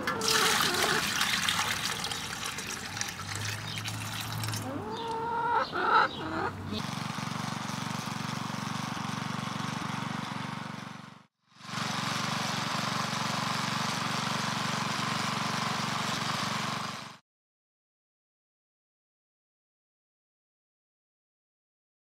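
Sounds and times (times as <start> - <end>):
garden tiller engine running: 0.0 - 17.2.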